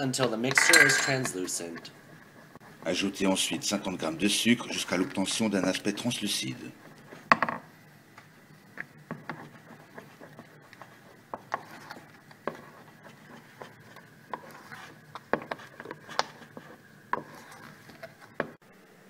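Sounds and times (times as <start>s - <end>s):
wooden spoon scraping saucepan: 8.8s - 18.6s.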